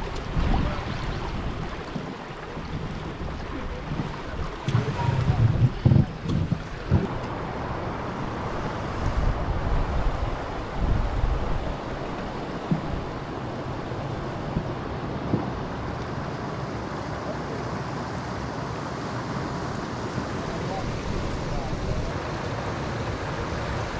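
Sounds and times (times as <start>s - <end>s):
wind buffeting microphone: 0.0s - 15.9s
water rushing over dam: 0.0s - 23.9s.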